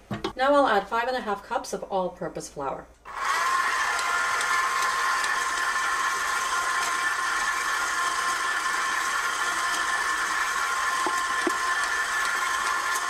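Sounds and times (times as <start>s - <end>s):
beater churning dough: 3.1s - 13.0s
stand mixer motor whine: 3.1s - 13.0s.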